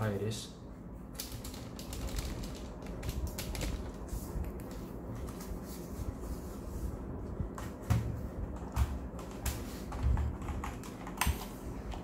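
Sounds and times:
plastic keyboard clicks and knocks: 8.6 - 12.0.

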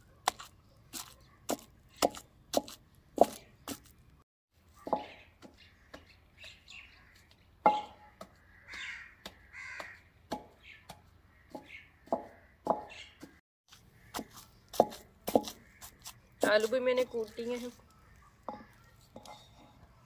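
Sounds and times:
bird calls: 4.7 - 20.0.

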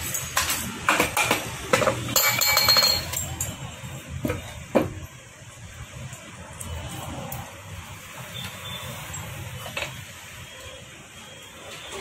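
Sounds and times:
metal engine parts clinking: 0.0 - 3.7
ringing metallic rattle: 2.1 - 3.5.

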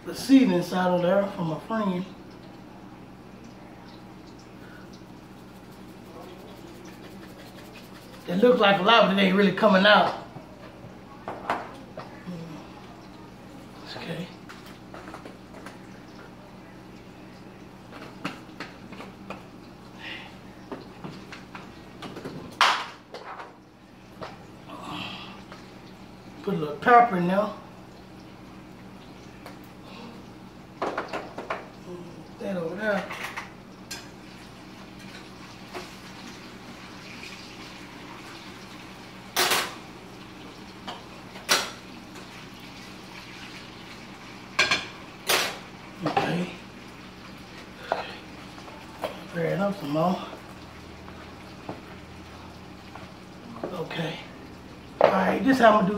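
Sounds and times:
food sizzling in a pan: 25.4 - 55.9.

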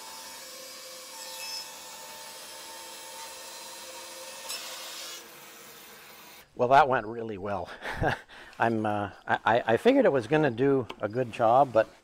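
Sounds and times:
bandsaw cutting wood: 0.0 - 6.4, 10.8 - 12.0.

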